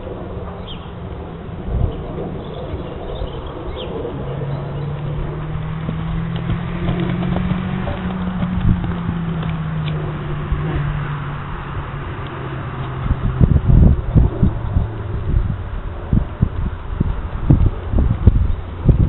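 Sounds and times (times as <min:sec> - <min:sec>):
steady low hum: 0:00.0 - 0:19.0
horse hooves thudding on grass: 0:04.9 - 0:11.3.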